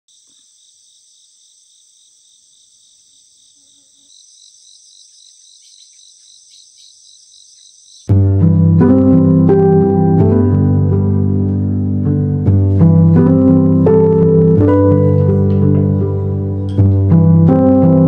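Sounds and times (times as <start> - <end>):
crickets chirring: 0.1 - 8.1
piano music: 8.1 - 18.0.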